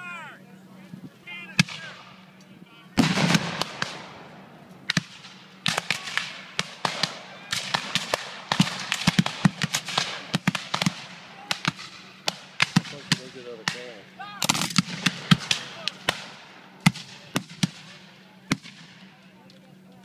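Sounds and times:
musket shots: 3.0s - 4.3s, 4.9s - 19.1s.

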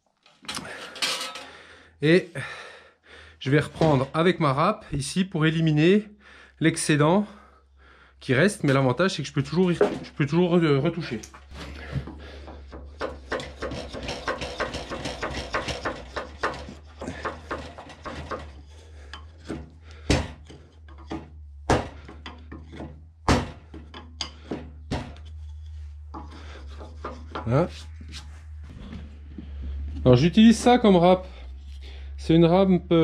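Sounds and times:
rasp scraping wood: 11.4s - 28.9s
sharp knocks: 12.1s - 18.6s, 19.4s - 25.2s.

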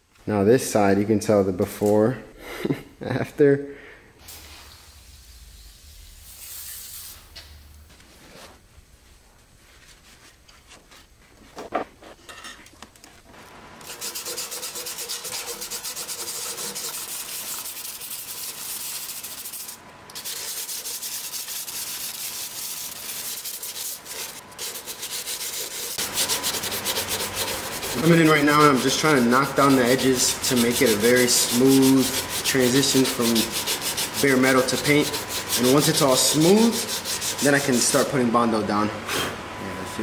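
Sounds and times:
spray can hiss: 4.2s - 7.6s
sandpaper sanding metal: 13.8s - 38.1s.

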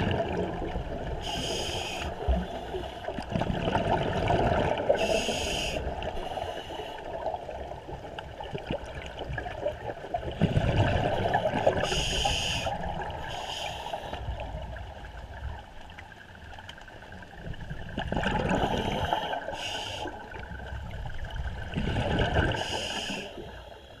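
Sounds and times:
hissing inhalations: 1.2s - 2.9s, 5.0s - 7.1s, 11.8s - 14.2s, 18.7s - 20.2s, 22.6s - 23.8s
bubbling exhalations: 18.0s - 19.4s.

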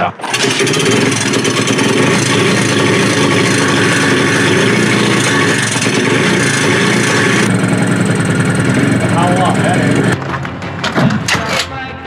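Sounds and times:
small motorcycle engine running: 0.2s - 10.2s.

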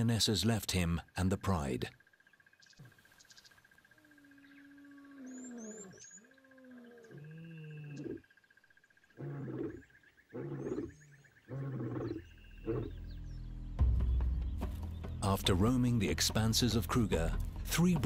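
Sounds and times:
bird chirps: 2.0s - 15.3s
lion moaning calls: 3.9s - 8.3s, 9.2s - 13.0s
lion grunting: 9.2s - 13.0s.

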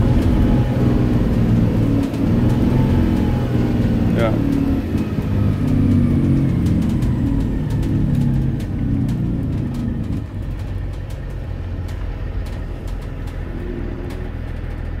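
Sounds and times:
diesel bus engine rumble: 0.0s - 15.0s
light clicks and rattles: 4.1s - 15.0s.

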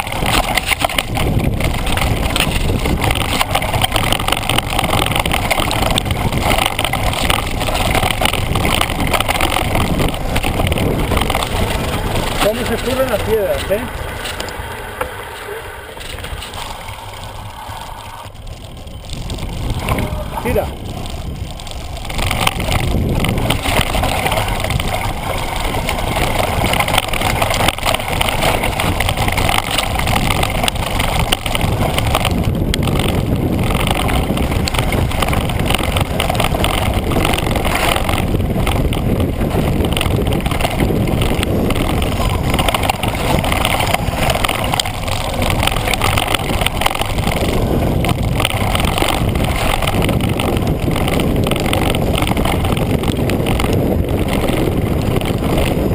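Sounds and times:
bike tyres on loose gravel: 0.0s - 55.9s
wind rushing over microphone: 0.0s - 55.9s.

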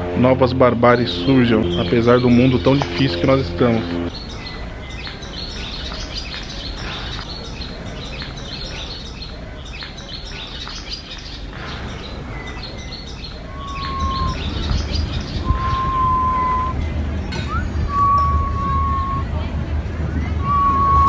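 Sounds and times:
low background rumble: 0.0s - 4.9s, 11.5s - 21.0s
small birds chirping: 1.1s - 21.0s
whistle-like tone: 13.5s - 16.8s, 17.4s - 19.5s, 20.4s - 21.0s.

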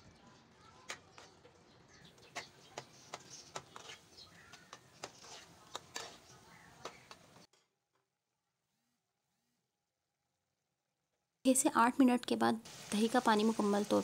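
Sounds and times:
metal spatula scraping a pan: 3.0s - 7.1s.

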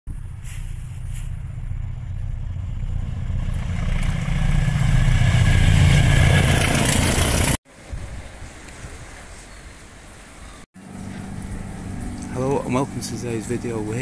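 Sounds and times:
locomotive engine rumble: 0.1s - 7.6s, 10.8s - 14.0s
train rail noise: 3.3s - 7.6s.

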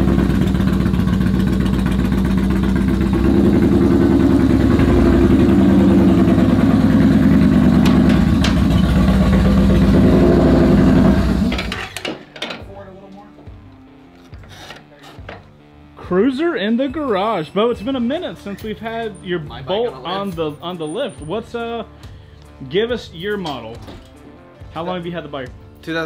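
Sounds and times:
motorcycle exhaust pulsing: 0.0s - 11.8s.

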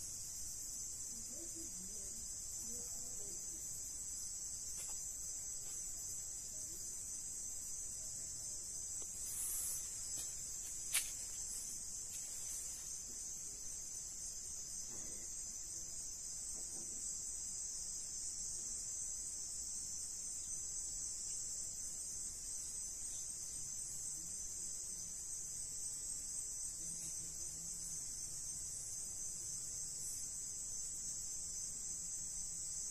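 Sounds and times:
crickets chirping: 0.0s - 32.9s.

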